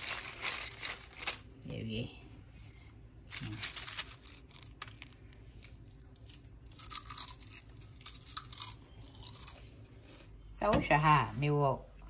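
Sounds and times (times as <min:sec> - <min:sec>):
crisps crackling and crunching: 0:00.0 - 0:02.0, 0:03.2 - 0:09.6.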